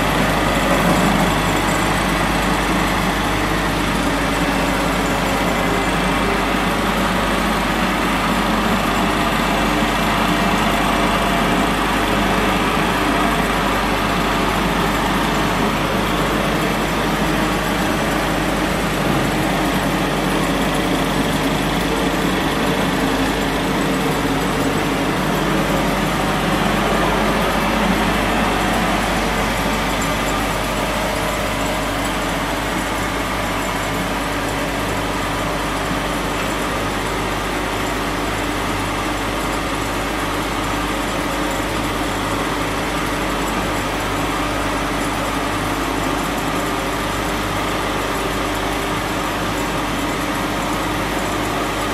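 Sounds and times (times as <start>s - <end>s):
sanding machine running: 0.0s - 39.2s.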